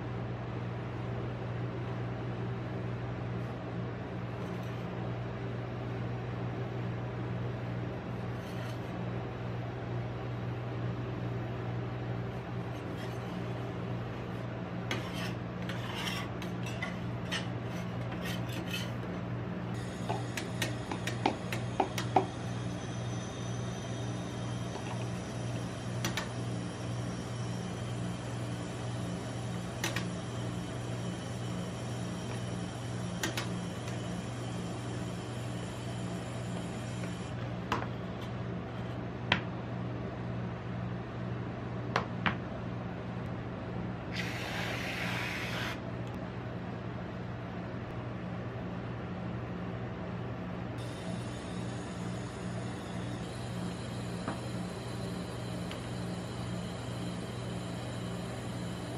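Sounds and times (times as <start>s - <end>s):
steady low hum: 0.0s - 58.9s
metal spatula scraping metal plate: 14.9s - 19.0s.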